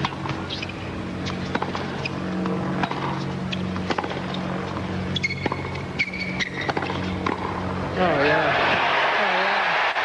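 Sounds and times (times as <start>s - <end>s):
tennis ball hit by racket: 0.0s - 7.6s
steady low hum: 0.0s - 10.0s.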